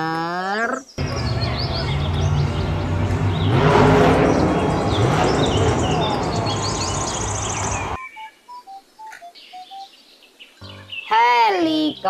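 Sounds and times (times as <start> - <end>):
arena crowd noise: 1.0 - 7.2
monster truck engine: 1.0 - 8.0.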